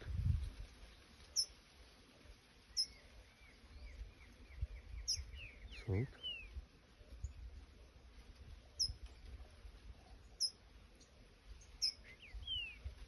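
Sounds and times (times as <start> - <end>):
sharp high bird chirps: 11.7 - 12.7.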